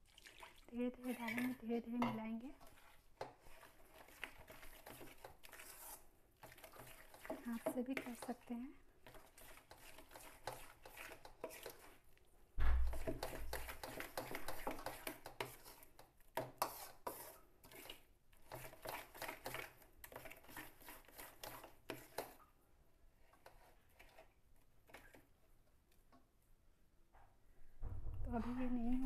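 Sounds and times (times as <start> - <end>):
hand mixing batter in bowl: 0.0 - 26.1
dull thump: 12.6 - 13.0, 27.8 - 28.6.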